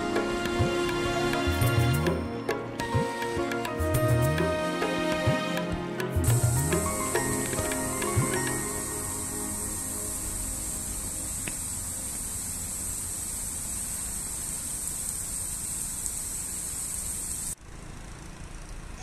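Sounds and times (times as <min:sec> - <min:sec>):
high steady hiss: 0:05.8 - 0:17.6.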